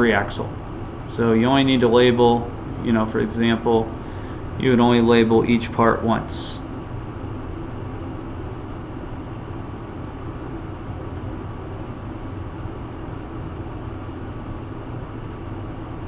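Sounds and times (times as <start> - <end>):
fan hum with hiss: 0.0 - 16.0
computer mouse clicks: 10.0 - 11.3, 12.5 - 12.8.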